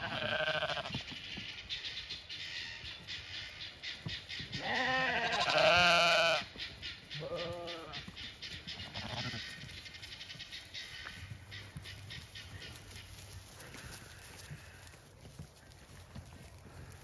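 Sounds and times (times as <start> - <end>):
sheep bleating: 0.0 - 1.0, 4.6 - 6.5, 7.2 - 8.0, 8.8 - 9.6.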